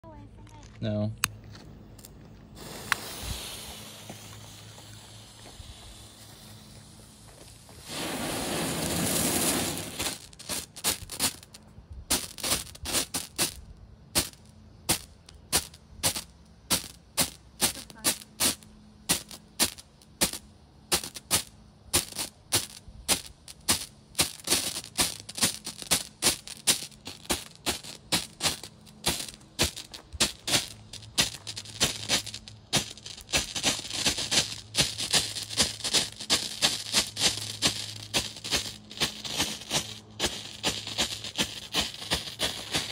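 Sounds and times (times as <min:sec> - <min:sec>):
firework hissing: 0:02.5 - 0:42.9
sharp strobe pops: 0:02.5 - 0:42.9.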